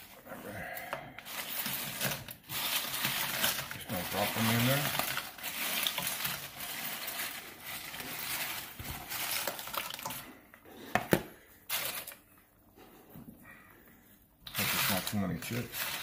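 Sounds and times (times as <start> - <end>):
tortilla chips rustling: 1.2 - 10.3, 11.7 - 12.2, 14.4 - 16.0.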